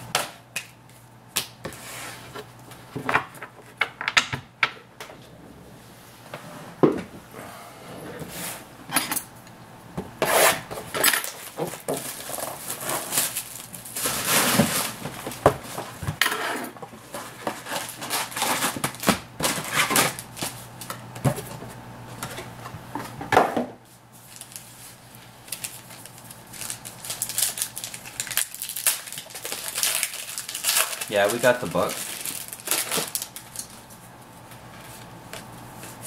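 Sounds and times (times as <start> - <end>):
card packs scraping: 10.3 - 20.6, 25.5 - 33.7
plastic wrap crinkling: 11.2 - 15.9, 24.2 - 36.0.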